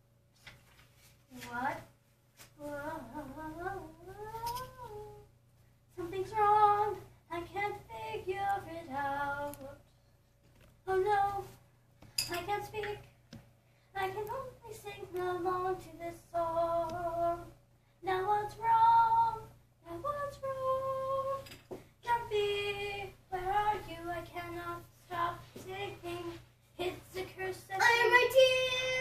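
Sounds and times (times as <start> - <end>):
child singing unaccompanied: 2.6 - 5.3, 6.0 - 9.8, 10.9 - 11.6, 12.3 - 13.0, 14.0 - 21.4, 22.0 - 29.0.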